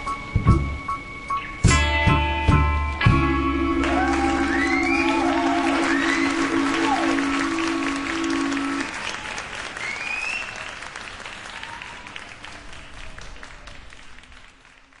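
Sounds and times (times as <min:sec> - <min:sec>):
band holding low note: 0:00.0 - 0:08.9
audience applauding: 0:03.8 - 0:15.0.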